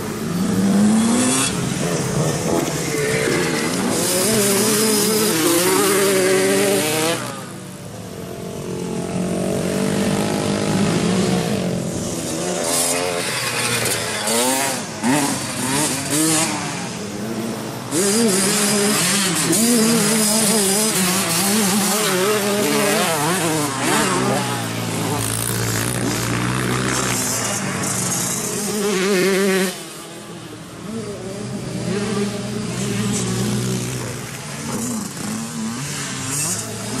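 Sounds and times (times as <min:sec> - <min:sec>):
dirt bike engines revving: 0:00.0 - 0:37.0.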